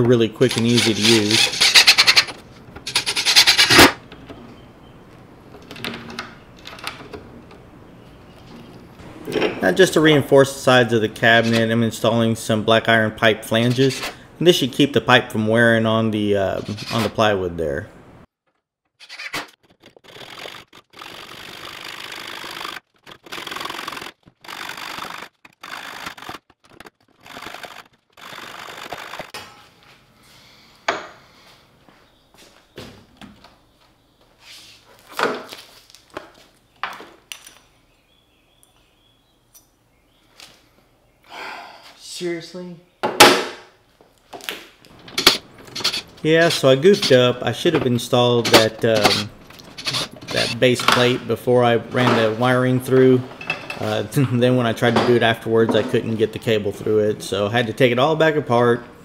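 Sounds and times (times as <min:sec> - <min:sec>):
hacksaw cutting metal pipe: 0:00.4 - 0:04.0, 0:45.2 - 0:46.1, 0:48.4 - 0:50.6
cordless driver whirring: 0:19.9 - 0:26.5, 0:27.2 - 0:29.3.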